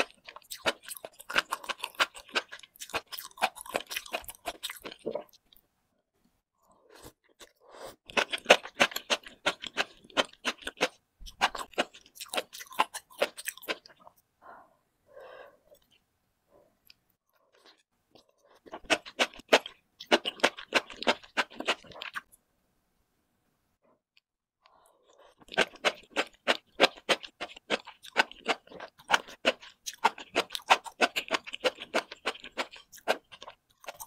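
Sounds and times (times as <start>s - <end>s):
crunchy wet chewing: 0.0s - 5.6s, 8.1s - 14.2s, 16.8s - 22.3s, 25.2s - 34.0s.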